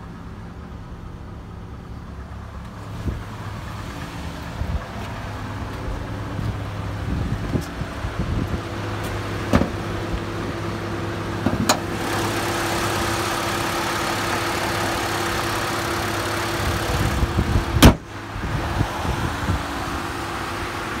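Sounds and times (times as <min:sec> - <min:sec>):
car engine idling: 0:00.0 - 0:21.0
car hood slammed shut: 0:09.5 - 0:09.8, 0:17.8 - 0:18.1.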